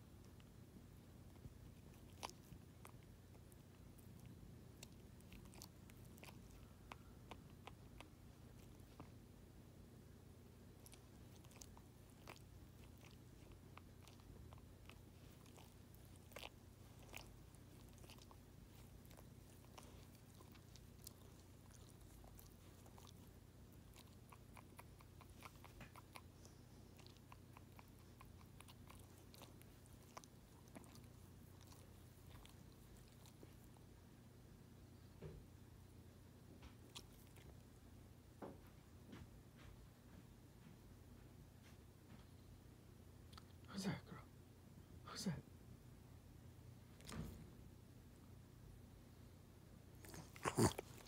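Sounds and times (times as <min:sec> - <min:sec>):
low room hum: 0:00.0 - 0:51.0
dog licking its paws: 0:10.7 - 0:33.7, 0:50.0 - 0:51.0.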